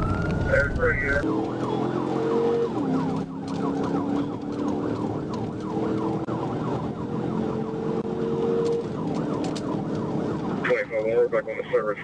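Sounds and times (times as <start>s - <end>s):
car engine accelerating: 0.0s - 10.7s
police siren yelping: 0.0s - 12.0s.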